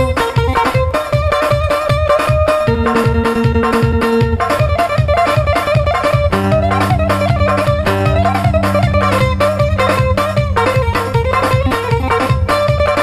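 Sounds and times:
steady beat: 1.5 - 13.0
held chord tones: 2.7 - 13.0
plucked lute melody: 2.7 - 13.0.

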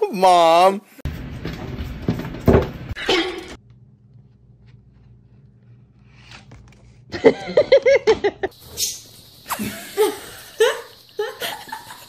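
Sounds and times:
person laughing: 7.1 - 8.6, 9.5 - 12.0.

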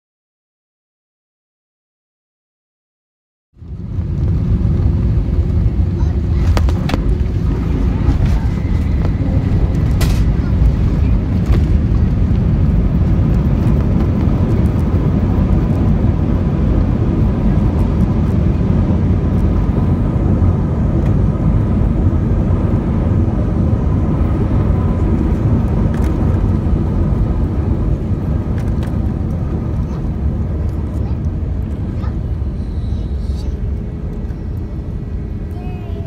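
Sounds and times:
faint engine whine: 3.6 - 36.0
jet engines and wheels rumbling: 3.6 - 36.0.

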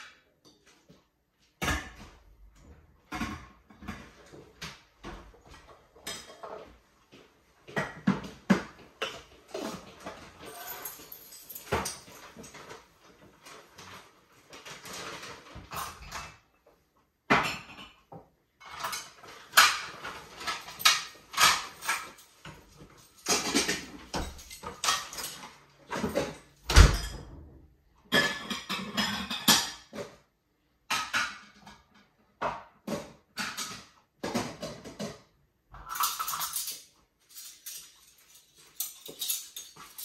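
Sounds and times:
dishes and pots clattering: 3.1 - 6.8, 17.3 - 22.6, 23.2 - 30.2, 30.9 - 40.0.

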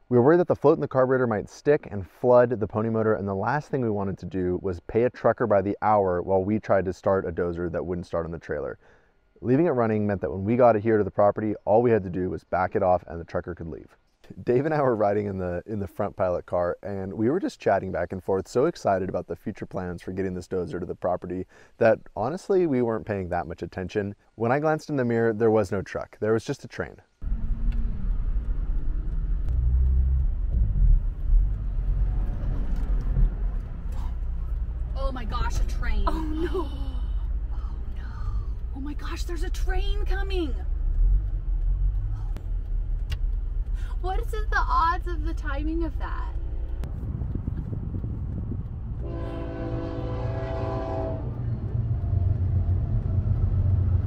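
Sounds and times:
car cabin engine and road rumble: 27.2 - 49.1, 51.2 - 54.0
train air horn blast: 49.0 - 51.4.

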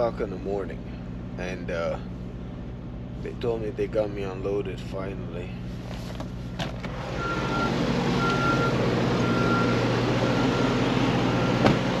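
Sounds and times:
truck engine humming: 0.0 - 12.0
truck reversing alarm beeping: 6.4 - 12.0.

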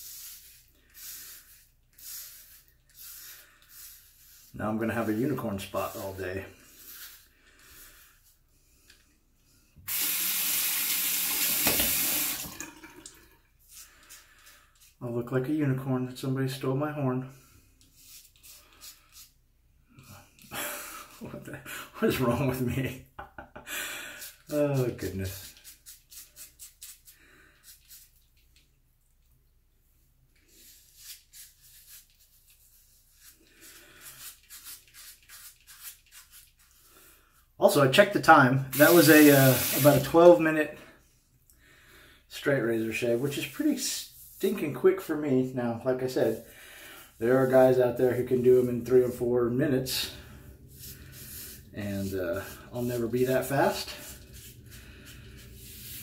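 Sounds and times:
tap water running into sink: 9.9 - 13.3.

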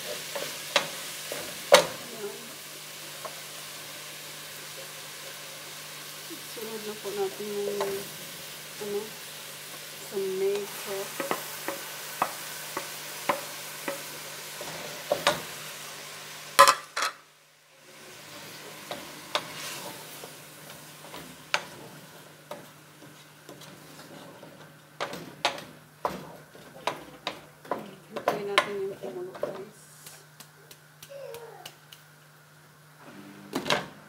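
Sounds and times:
onions sizzling in oil: 0.0 - 31.2
wooden spoon knocking and scraping pot: 10.5 - 15.5, 21.0 - 29.8.

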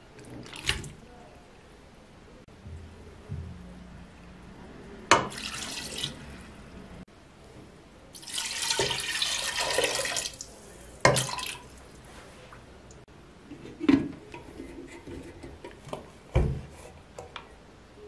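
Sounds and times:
liquid splashing into a pot: 5.1 - 6.3, 8.2 - 11.9
water pouring from a jug: 5.3 - 6.3, 8.2 - 12.0.

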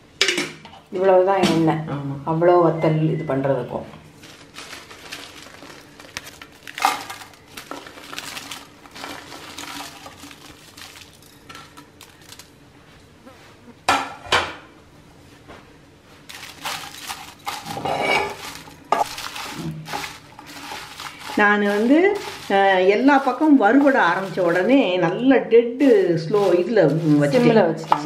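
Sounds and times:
dried chillies clattering in pan: 4.2 - 12.6, 16.3 - 25.2, 25.8 - 28.0.

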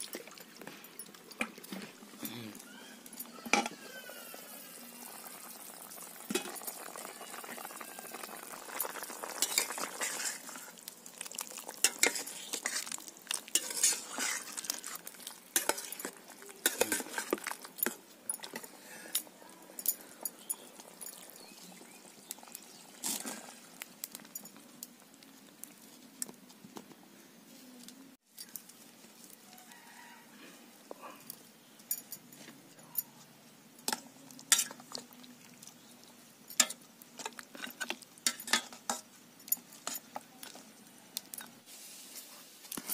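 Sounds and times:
metal spatula scraping pan: 9.4 - 10.7, 11.8 - 15.0.

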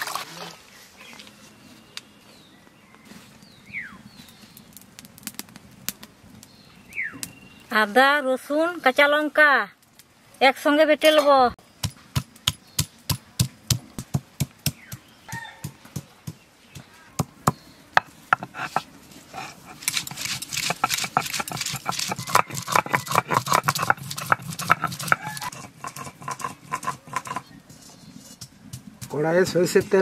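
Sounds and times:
stone scraping over slab: 18.3 - 28.5.

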